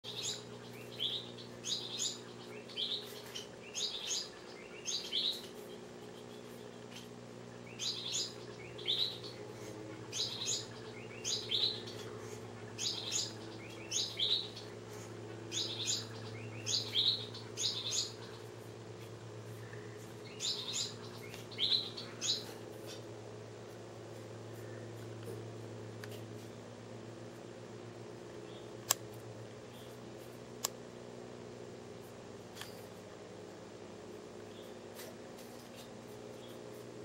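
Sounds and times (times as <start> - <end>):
small bird chirping: 0.0 - 25.4, 28.2 - 29.0, 29.6 - 30.0, 34.4 - 36.9
steady low hum: 0.0 - 37.0.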